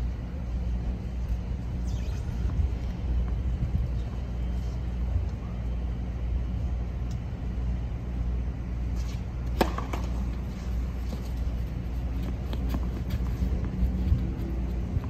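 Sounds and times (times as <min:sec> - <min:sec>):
low outdoor rumble: 0:00.0 - 0:15.0
tennis racket hitting ball: 0:09.5 - 0:10.3.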